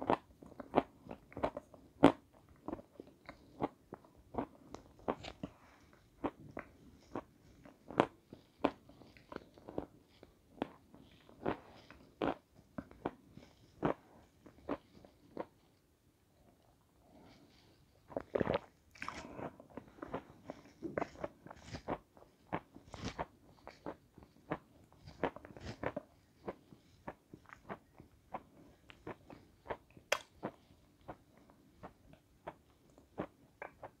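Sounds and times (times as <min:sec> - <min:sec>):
crunchy chewing: 0:17.3 - 0:34.0.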